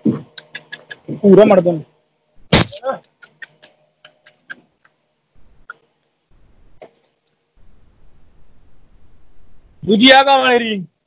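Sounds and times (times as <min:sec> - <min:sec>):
faint low rumble: 0:06.3 - 0:06.8, 0:07.6 - 0:10.1.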